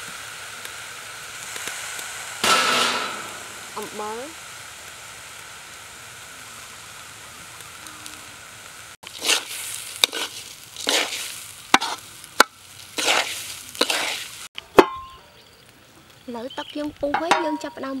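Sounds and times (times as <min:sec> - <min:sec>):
rice sizzling in wok: 0:00.0 - 0:18.0
metal spatula scraping rice: 0:09.1 - 0:12.0, 0:13.0 - 0:14.3.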